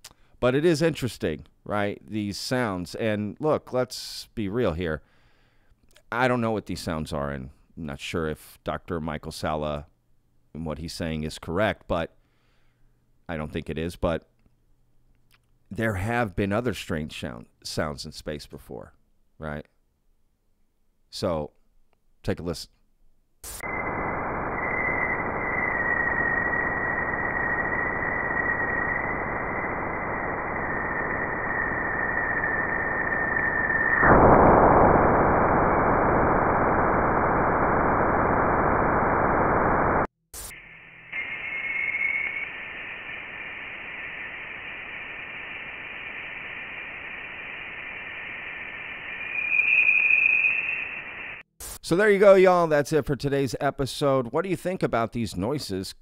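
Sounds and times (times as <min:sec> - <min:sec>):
sudden rush of noise: 0:23.6 - 0:51.4
steady hiss: 0:40.4 - 0:51.8
thin whistling tone: 0:40.8 - 0:43.1, 0:48.8 - 0:51.4.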